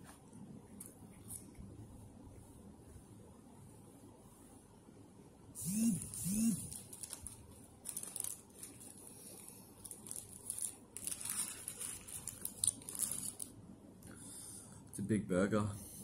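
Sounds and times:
paper wrapper crinkling: 0:06.1 - 0:13.6.

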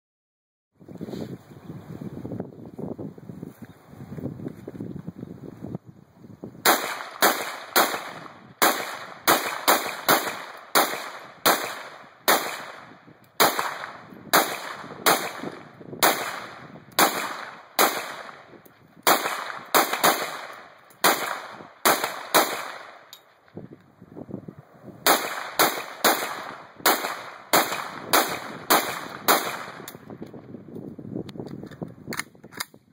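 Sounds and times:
rifle shots with echo: 0:06.6 - 0:23.1, 0:25.0 - 0:30.1.

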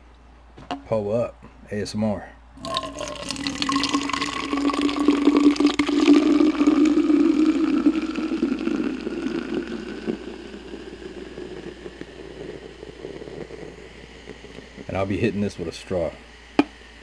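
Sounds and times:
carbonated drink pouring into cup: 0:02.6 - 0:14.9.

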